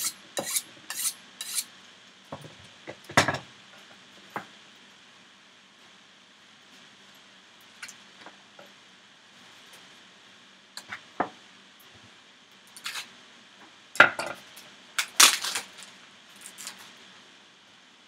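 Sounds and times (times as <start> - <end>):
plastic wrap crinkling: 15.0 - 17.0.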